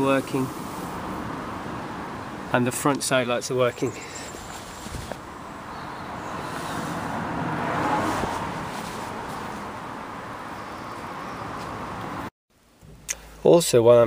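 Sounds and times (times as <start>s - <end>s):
car passing by: 4.2s - 12.3s.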